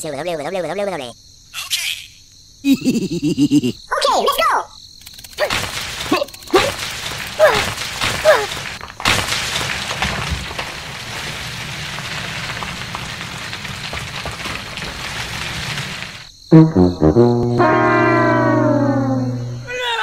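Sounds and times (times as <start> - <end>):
squeaky cartoon-like calls: 17.6 - 20.0.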